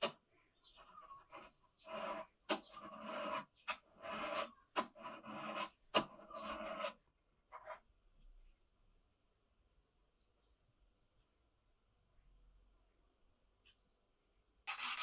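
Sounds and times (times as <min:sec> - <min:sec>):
file scraping metal: 0:01.2 - 0:07.0.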